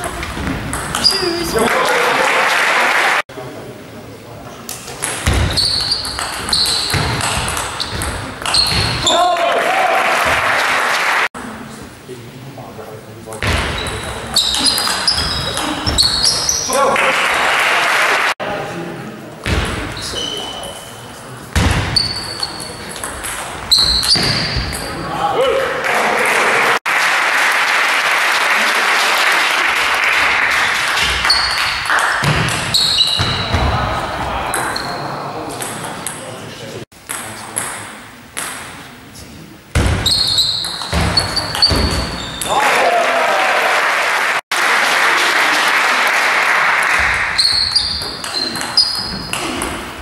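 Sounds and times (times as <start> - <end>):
table tennis rally: 0.0 - 3.2, 4.5 - 11.4, 13.2 - 18.7, 19.3 - 50.0
crowd noise: 0.0 - 50.0
spectators clapping: 1.6 - 3.3, 9.3 - 11.3, 16.8 - 18.4, 25.6 - 32.2, 42.5 - 47.4.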